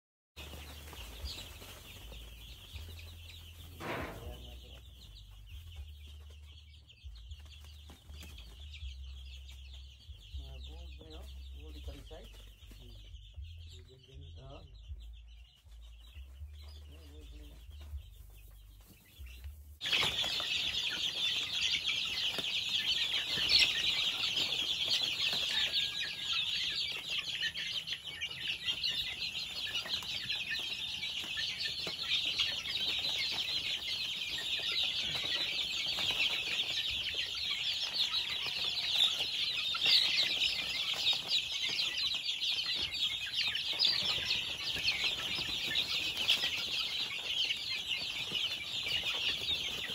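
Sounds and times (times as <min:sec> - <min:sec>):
chicks peeping: 0:00.4 - 0:49.9.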